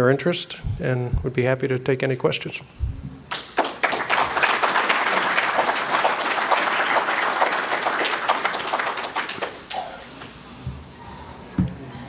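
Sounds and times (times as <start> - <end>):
audience applauding: 3.3 - 9.8.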